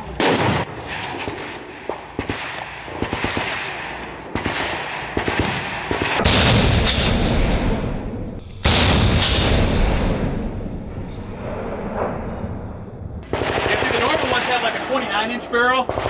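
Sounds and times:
gunshots: 0.2s - 12.4s, 13.2s - 16.0s
automatic gunfire bursts: 2.2s - 6.2s, 13.2s - 15.0s
loud dull rumble: 6.2s - 15.1s.

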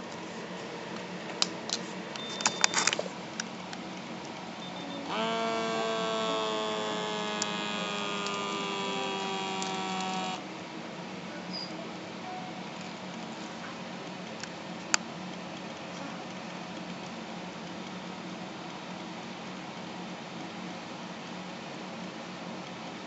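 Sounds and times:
air pump whine: 5.0s - 10.4s.

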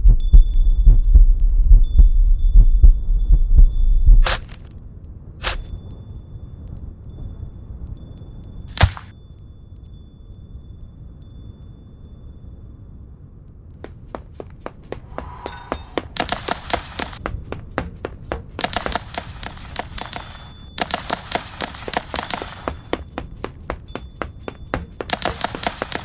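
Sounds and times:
rapid gunfire: 16.2s - 17.2s, 18.6s - 22.6s, 25.1s - 26.0s.

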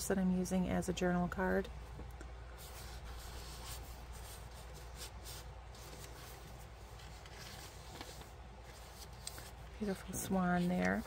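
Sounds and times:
paper rustling and sliding: 2.6s - 11.0s.

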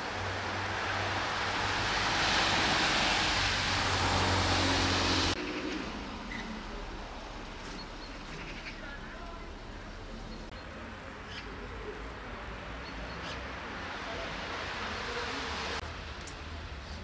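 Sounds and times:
vehicle running: 0.0s - 10.6s.

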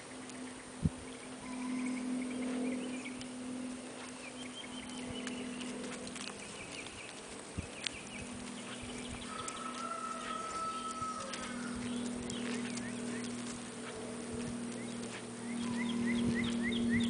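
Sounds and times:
steady low hum: 0.0s - 17.0s
footsteps on gravel: 3.9s - 16.7s.

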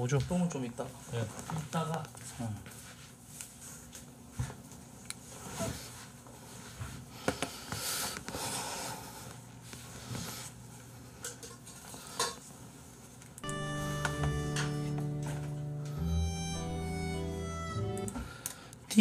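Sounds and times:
rustling and shuffling in chair: 0.2s - 11.0s.

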